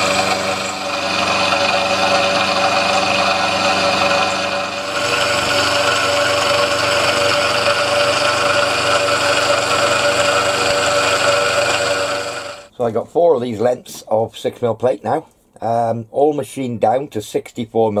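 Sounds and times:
end mill cutting metal: 0.0 - 12.7
milling machine whine: 0.0 - 12.7.

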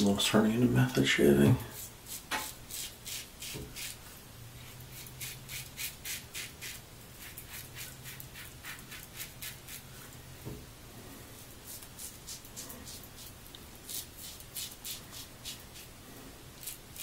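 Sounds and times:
razor scraping stubble: 1.7 - 4.0, 4.6 - 10.0, 11.4 - 15.9, 16.6 - 17.0.

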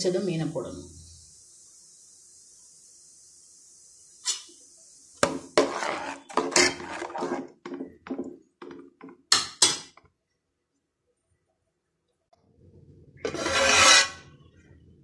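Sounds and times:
steady high hiss: 0.0 - 6.8
metal ladle scraping pot: 5.2 - 9.9, 13.2 - 14.4.

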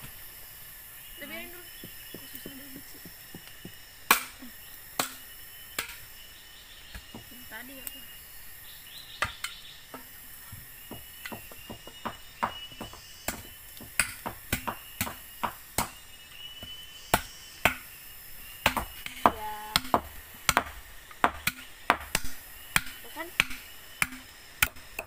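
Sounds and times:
blade chopping bamboo: 18.6 - 25.0.

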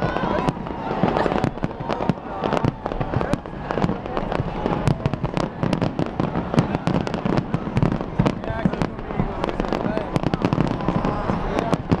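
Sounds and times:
fireworks bangs and cracks: 0.0 - 12.0.

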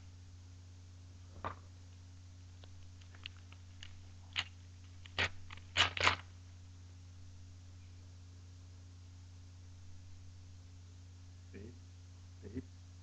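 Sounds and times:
steady low hum: 0.0 - 13.0
foil wrapper crinkling: 2.7 - 6.3.

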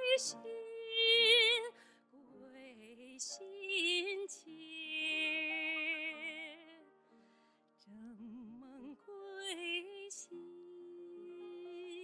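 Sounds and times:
woman singing with vibrato: 0.0 - 1.7, 2.4 - 6.8, 7.9 - 12.0
piano accompaniment: 0.0 - 12.0.

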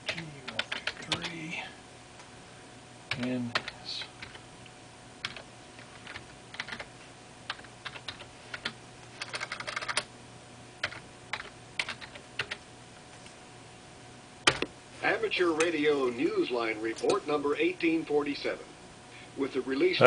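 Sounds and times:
computer keyboard typing: 0.0 - 1.4, 3.1 - 4.4, 5.2 - 6.9, 7.5 - 10.1, 10.8 - 12.6, 14.5 - 14.7.

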